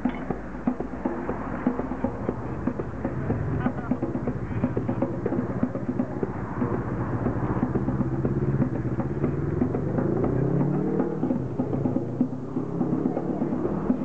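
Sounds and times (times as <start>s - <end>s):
hand drum percussion: 0.0s - 14.0s
motorcycle engine revving: 6.6s - 14.0s.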